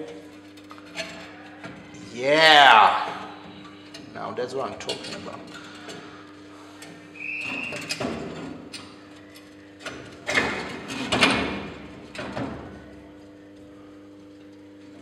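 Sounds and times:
short high squeak: 7.2s - 8.0s.

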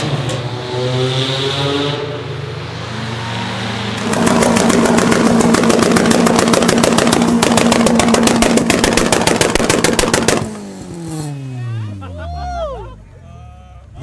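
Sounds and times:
car engine at high revs: 0.0s - 11.7s
exhaust pops and bangs: 4.0s - 10.6s.

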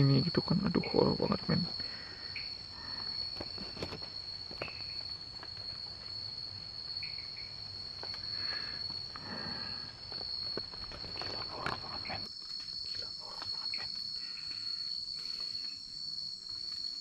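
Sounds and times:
crickets chirring: 0.0s - 17.0s
faint clicks and rustles: 3.0s - 6.6s, 7.6s - 14.6s.

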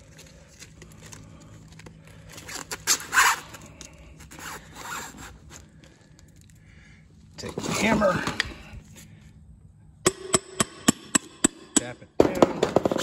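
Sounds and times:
plastic pipe scraping in foam: 7.4s - 8.4s.

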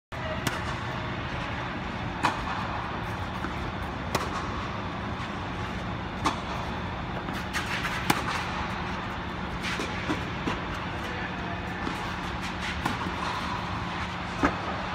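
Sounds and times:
steady machine hum: 0.1s - 14.9s
racket hitting tennis ball: 0.4s - 0.8s, 2.2s - 4.6s, 5.7s - 8.7s, 9.5s - 11.1s, 11.8s - 14.8s.

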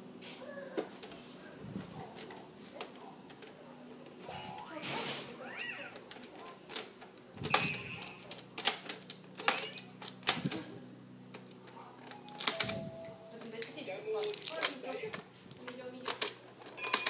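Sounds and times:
plastic toy buttons clicking: 5.9s - 10.4s, 12.1s - 12.8s.

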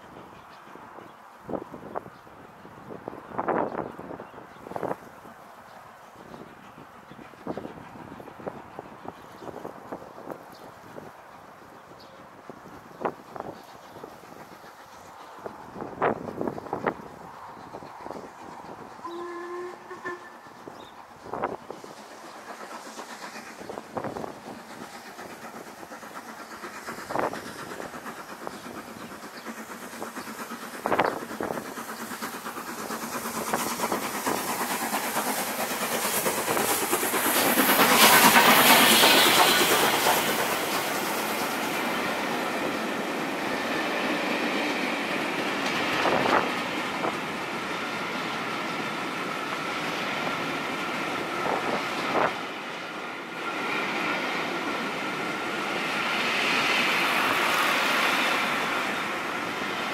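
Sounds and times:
steam locomotive passing: 0.0s - 59.9s
train wheels rolling on rails: 0.0s - 59.9s.

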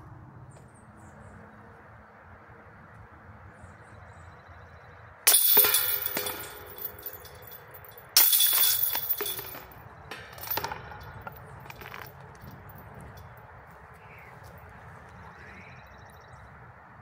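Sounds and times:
discs hitting chains: 5.3s - 12.1s
chains rattling softly: 5.3s - 13.4s.

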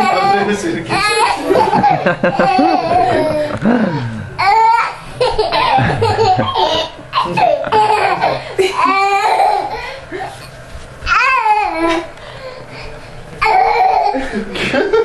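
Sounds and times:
young boy laughing hysterically: 0.0s - 10.0s, 13.5s - 15.0s.

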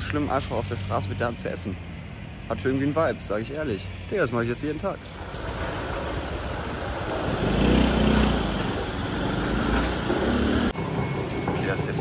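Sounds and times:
street traffic: 0.0s - 12.0s
vehicle engine passing close: 5.0s - 11.0s.

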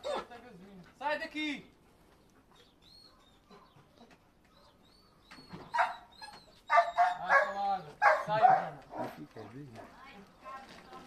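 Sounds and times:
faint bird chirps: 2.5s - 7.1s
dog barking: 5.7s - 6.1s, 6.7s - 9.2s.

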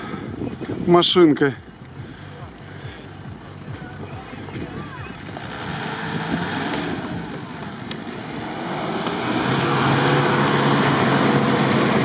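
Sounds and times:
engine revving hard: 4.5s - 12.0s.

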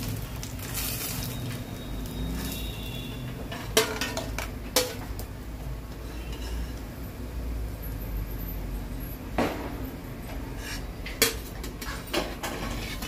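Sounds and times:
metal spoon scraping cookware: 10.5s - 13.0s.

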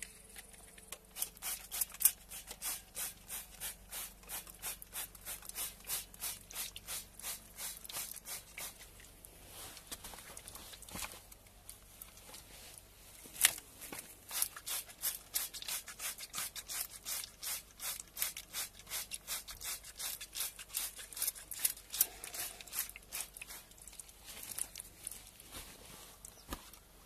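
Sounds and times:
spray bottle hissing sprays: 1.1s - 8.9s, 14.2s - 21.3s.

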